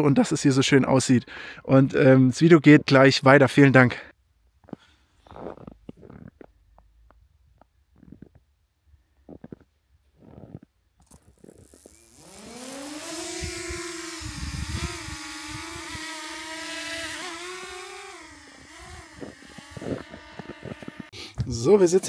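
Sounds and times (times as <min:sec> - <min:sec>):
drone propellers buzzing: 0:11.4 - 0:21.1.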